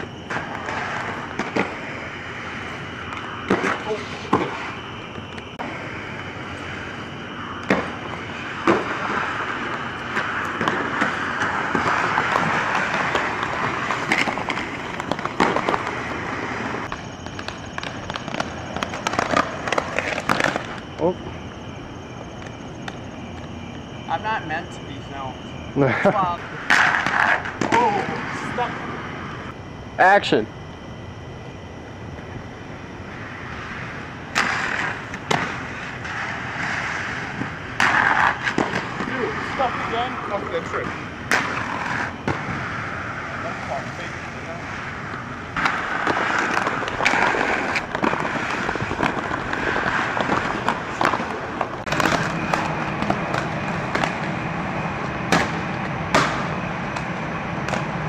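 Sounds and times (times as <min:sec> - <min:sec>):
skate wheels rolling on pavement: 0:00.0 - 0:30.5, 0:31.5 - 0:58.0.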